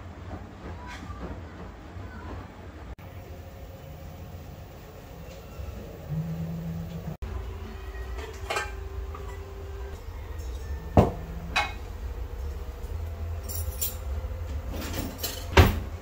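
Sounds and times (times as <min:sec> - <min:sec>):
dishes clinking and knocking: 0:08.0 - 0:16.0.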